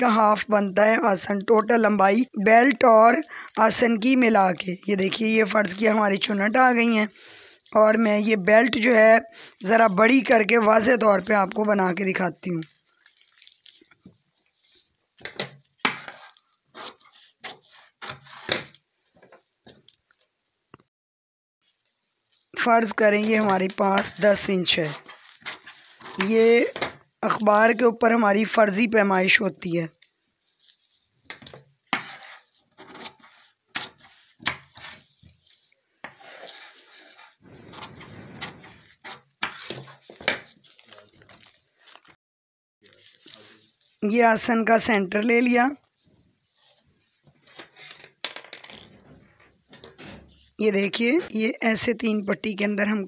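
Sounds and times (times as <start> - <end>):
newspaper crackling and rustling: 12.4 - 18.4, 32.4 - 42.2.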